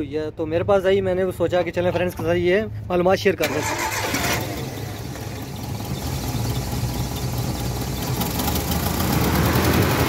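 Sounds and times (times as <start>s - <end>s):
car engine idling: 3.4s - 10.0s.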